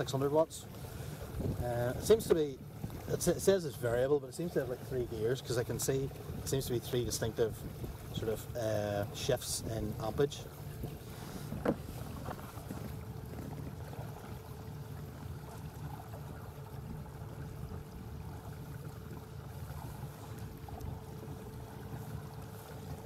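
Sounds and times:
water and wind rumble: 0.0 - 23.0.

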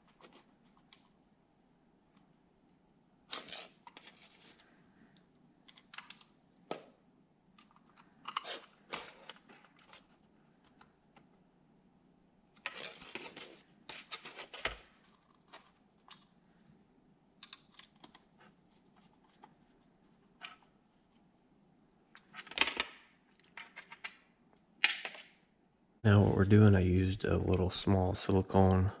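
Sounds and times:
small parts clicking and rustling: 3.3 - 6.9, 7.5 - 11.3, 12.6 - 16.4, 17.4 - 21.3, 22.1 - 25.4.

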